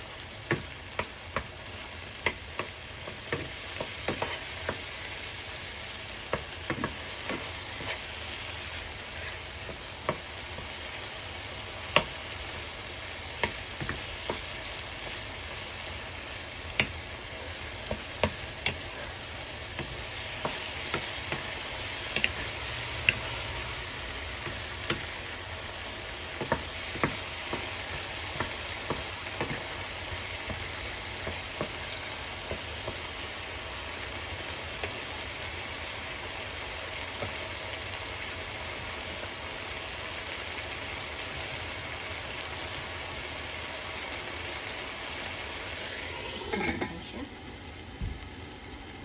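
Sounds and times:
vegetables sizzling in frying pan: 0:00.0 - 0:49.0
metal lid clattering on pan: 0:46.4 - 0:47.0.

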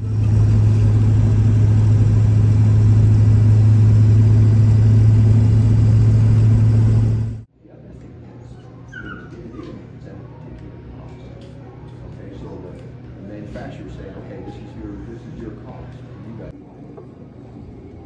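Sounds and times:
road and wind noise: 0:00.0 - 0:07.4
vehicle engine drone: 0:00.0 - 0:07.5.

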